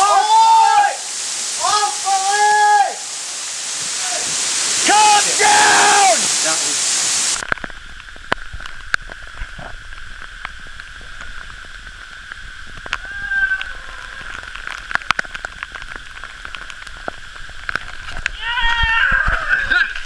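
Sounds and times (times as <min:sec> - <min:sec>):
waterfall rushing: 0:00.0 - 0:07.6, 0:12.7 - 0:16.1.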